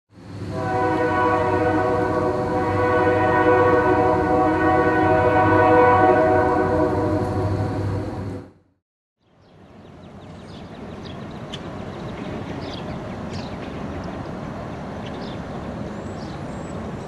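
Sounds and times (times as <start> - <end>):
locomotive air horn: 0.5 - 8.5.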